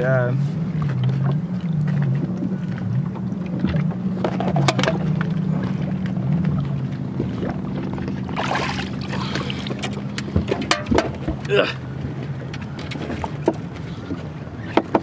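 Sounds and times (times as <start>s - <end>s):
low droning hum: 0.0s - 15.0s
fish splashing water: 4.9s - 11.4s.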